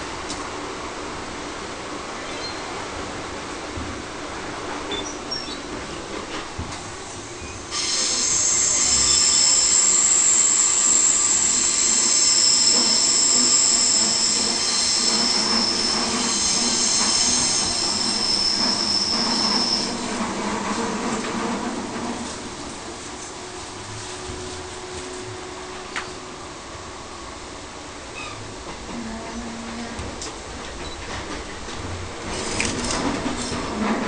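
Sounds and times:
train rumble: 0.0s - 34.0s
train wheels squealing: 2.2s - 2.8s, 4.9s - 5.7s, 7.3s - 20.4s, 28.1s - 28.4s.

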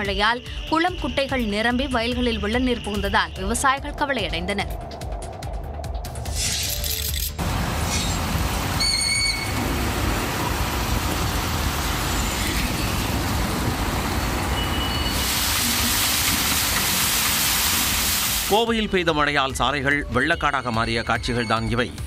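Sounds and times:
heavy rain: 7.4s - 18.6s
running water: 7.4s - 18.6s
traffic on wet streets: 7.4s - 18.6s
short high-pitched squeal: 8.8s - 9.6s, 14.6s - 15.9s.

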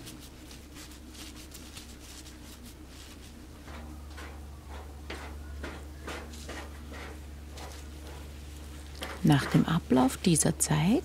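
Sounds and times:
towels rustling: 0.0s - 3.9s
low steady hum: 0.0s - 11.0s.

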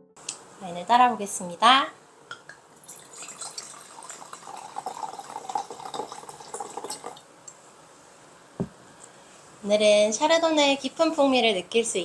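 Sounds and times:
wine pouring into glass: 2.8s - 7.2s.

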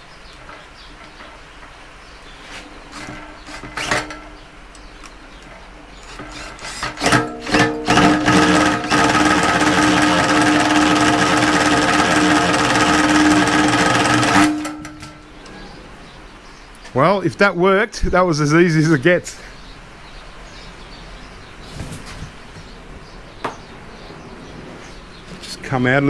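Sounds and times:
cable pulled through wire stripper: 2.4s - 4.4s, 6.0s - 15.2s
cordless drill running: 2.9s - 4.2s, 6.0s - 15.1s.

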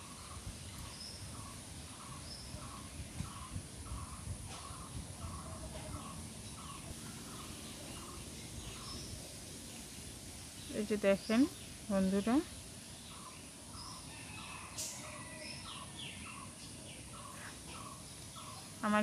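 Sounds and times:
bird calling: 13.0s - 19.0s.

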